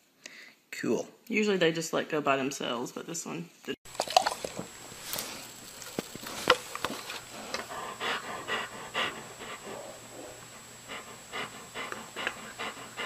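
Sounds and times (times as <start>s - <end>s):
dog panting: 6.1s - 13.0s.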